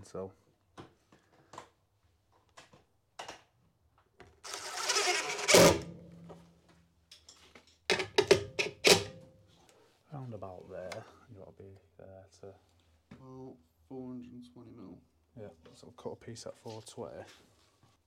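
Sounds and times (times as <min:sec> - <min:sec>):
cordless driver screwing: 0:04.5 - 0:05.8.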